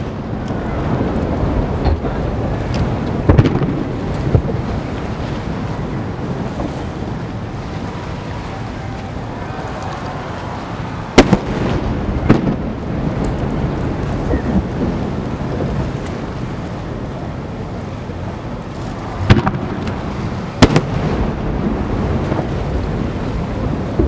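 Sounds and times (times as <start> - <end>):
firework shells booming: 3.2 - 4.6, 11.1 - 13.5, 19.2 - 20.0, 20.6 - 22.5.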